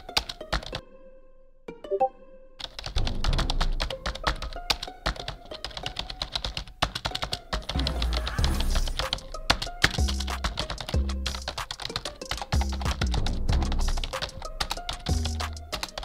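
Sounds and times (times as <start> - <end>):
computer keyboard typing: 2.6 - 16.0
background music with deep bass: 7.7 - 16.0.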